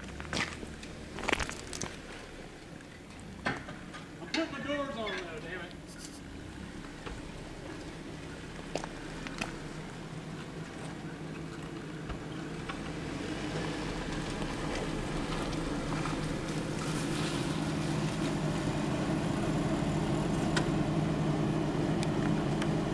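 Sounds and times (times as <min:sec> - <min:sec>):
stones clicking under tyres: 0:00.0 - 0:04.2, 0:05.7 - 0:18.7
car engine running slowly: 0:00.0 - 0:22.9.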